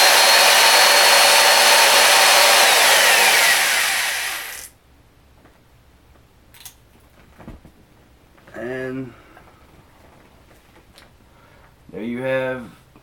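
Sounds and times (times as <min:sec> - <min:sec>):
electric drill whining: 0:00.0 - 0:04.7.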